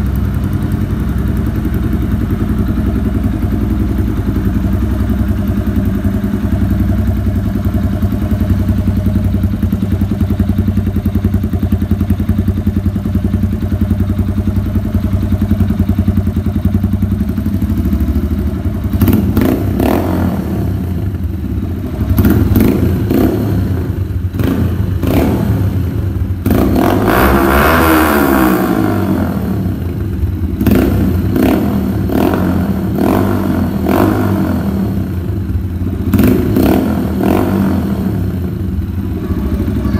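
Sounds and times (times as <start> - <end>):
motorcycle engine idling and revving: 0.0 - 39.9.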